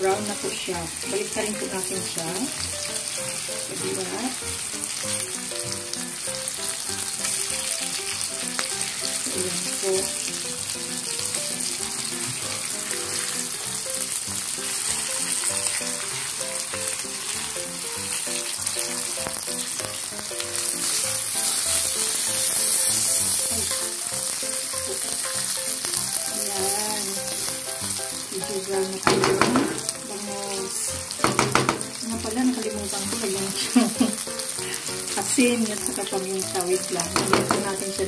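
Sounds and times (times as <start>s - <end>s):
fish sizzling in a wok: 0.0s - 38.0s
wooden spatula turning food: 28.4s - 34.2s, 36.7s - 38.0s.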